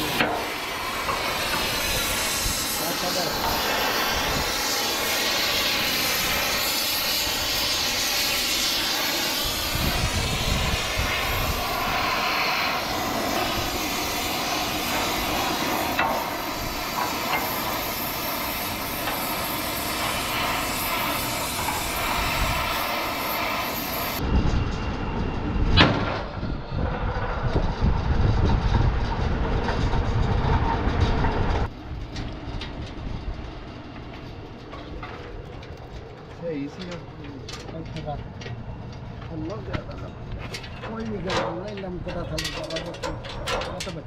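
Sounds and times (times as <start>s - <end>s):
torch flame hissing: 0.0s - 24.2s.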